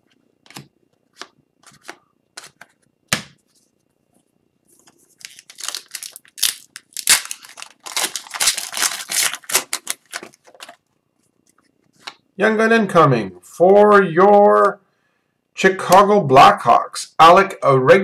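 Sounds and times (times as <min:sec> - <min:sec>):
wrapper tearing and crinkling: 0:05.1 - 0:10.8.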